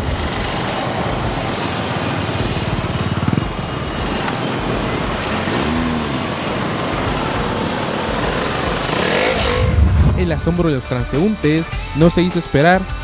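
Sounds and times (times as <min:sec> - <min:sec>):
motorcycle engine revving: 0:00.0 - 0:12.0
motorcycle engines running: 0:00.0 - 0:13.0.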